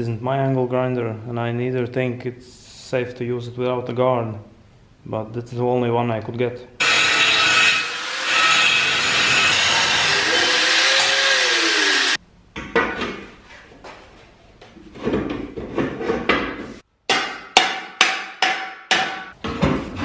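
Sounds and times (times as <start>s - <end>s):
angle grinder cutting steel: 6.8s - 12.2s.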